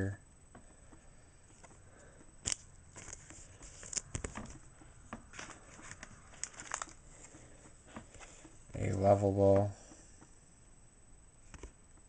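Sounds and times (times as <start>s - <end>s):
trading cards rustling: 2.4s - 9.1s.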